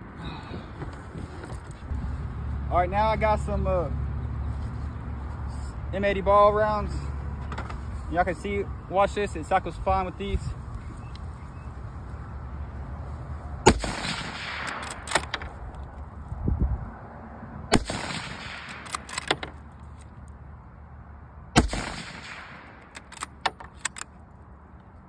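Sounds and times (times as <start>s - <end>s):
rifle shots: 13.7s - 15.4s, 17.7s - 19.2s, 21.6s - 23.3s
metallic rifle bolt clicks: 14.5s - 15.9s, 18.5s - 20.1s, 22.8s - 24.2s.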